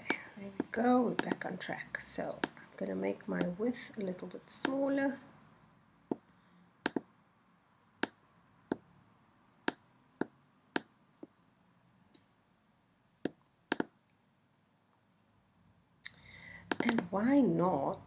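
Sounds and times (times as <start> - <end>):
computer mouse clicking: 6.8 - 7.1, 13.2 - 13.9, 16.7 - 17.0.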